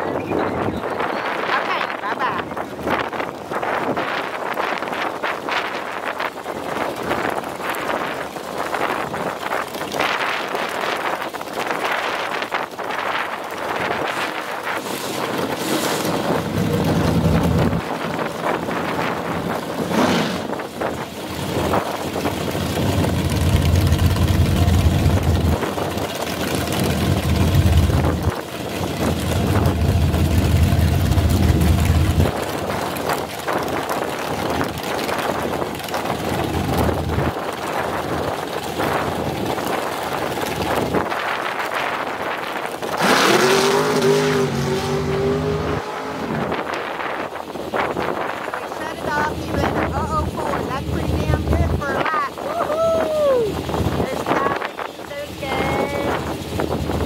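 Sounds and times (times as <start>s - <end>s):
wind buffeting microphone: 0.0s - 57.0s
dragster engine rumble: 13.4s - 52.1s.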